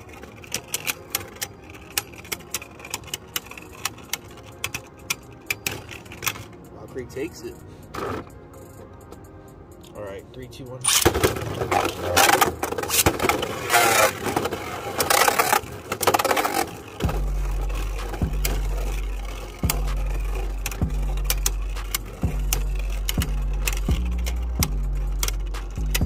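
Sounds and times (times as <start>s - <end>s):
spinning tops clashing and scraping: 10.8s - 26.0s
low bass note with beat: 17.0s - 26.0s.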